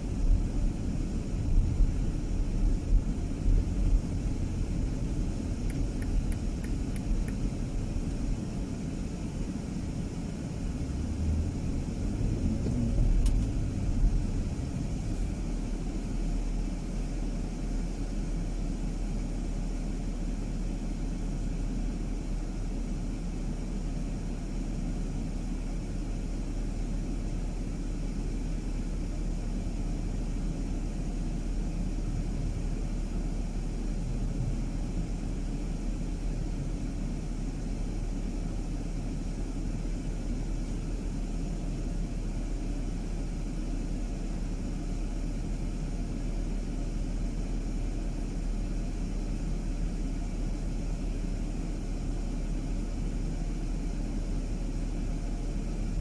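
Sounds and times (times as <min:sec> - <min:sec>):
car engine and road noise: 0:00.0 - 0:56.0.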